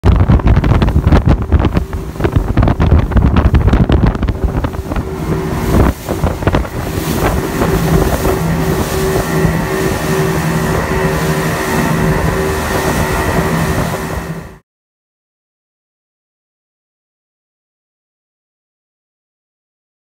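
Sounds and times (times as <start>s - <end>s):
outboard boat engine at speed: 0.0s - 14.6s
water rushing past hull: 0.0s - 14.6s
wind buffeting microphone: 0.0s - 14.6s.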